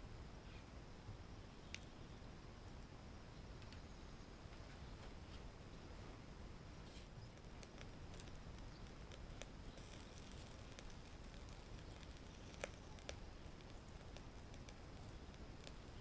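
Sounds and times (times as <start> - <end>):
fish grilling crackling and popping: 6.6 - 16.0.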